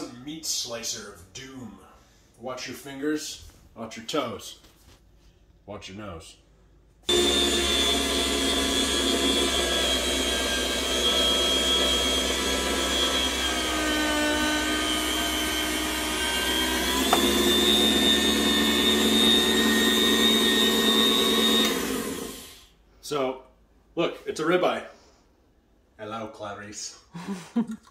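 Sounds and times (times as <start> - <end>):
meat slicer motor whining: 7.1 - 22.6.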